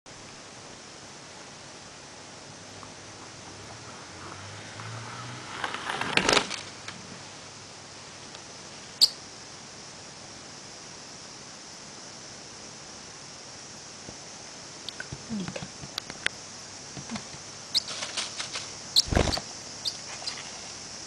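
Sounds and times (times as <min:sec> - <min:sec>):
steady hiss: 0:00.1 - 0:21.0
paper rustling: 0:17.8 - 0:19.4.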